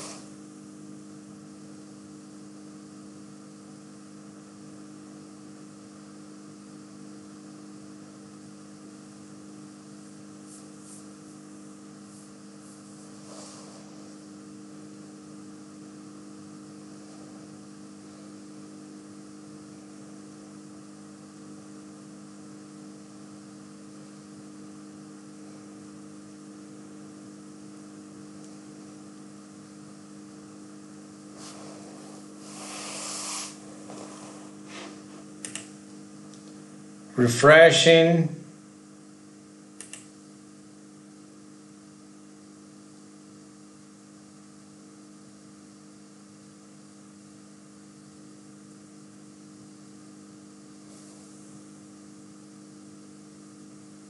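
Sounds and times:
electrical hum with hiss: 0.0s - 54.0s
faint clicks: 35.4s - 35.7s, 39.8s - 40.1s.

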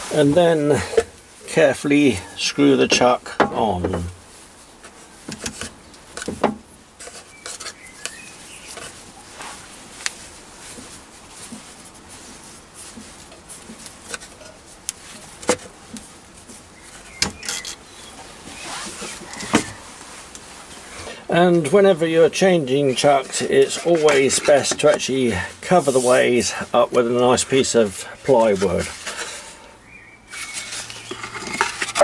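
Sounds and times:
quiet metal scraping: 7.0s - 32.0s.

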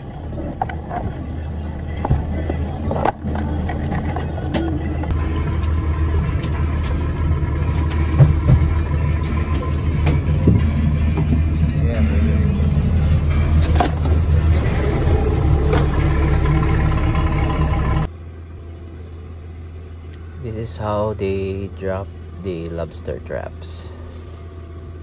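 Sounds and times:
boat engine droning: 0.0s - 25.0s.

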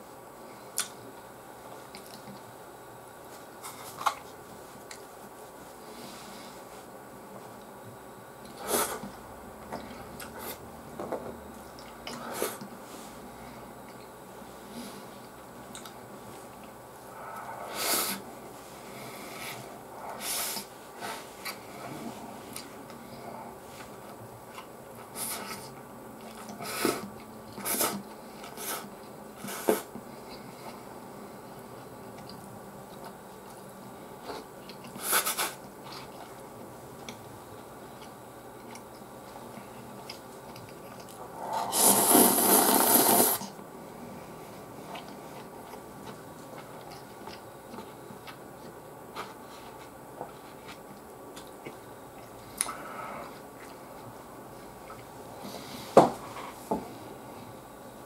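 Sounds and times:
person chewing: 32.2s - 37.2s, 37.9s - 43.5s, 44.8s - 54.1s
loud slurp of noodles: 41.4s - 43.5s.

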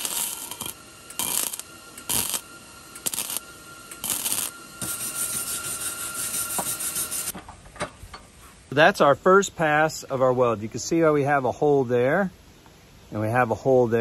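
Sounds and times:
welder arc crackling and sizzling: 0.0s - 7.3s.

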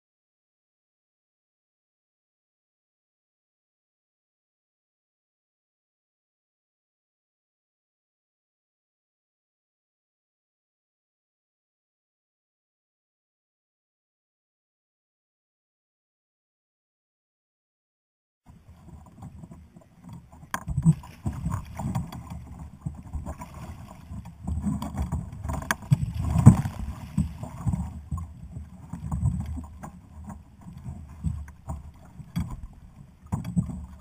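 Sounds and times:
water splashing around kayak: 18.5s - 34.0s.

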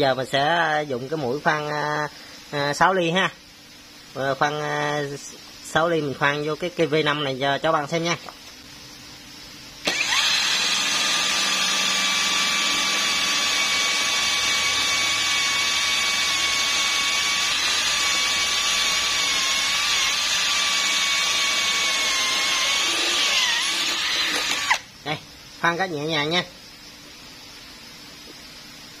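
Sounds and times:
drill drilling through steel: 9.8s - 24.9s.

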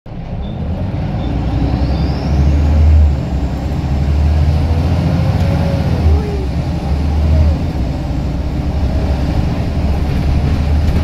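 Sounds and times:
bus diesel engine pulling hard: 0.1s - 11.0s.

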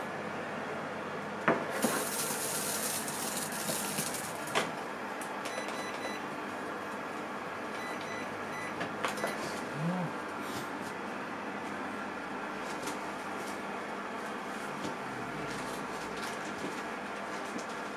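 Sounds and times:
microwave beeps: 5.4s - 6.3s, 7.7s - 9.6s.

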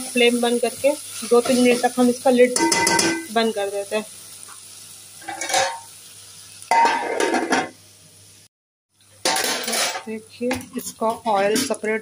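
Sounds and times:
metal lid clattering on pot: 2.6s - 3.3s, 5.2s - 5.9s, 6.7s - 7.7s, 9.2s - 10.1s.

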